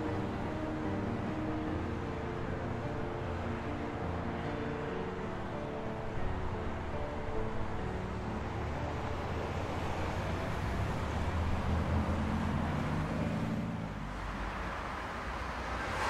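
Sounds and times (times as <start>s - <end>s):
vehicle passing with low rumble: 7.9s - 16.0s.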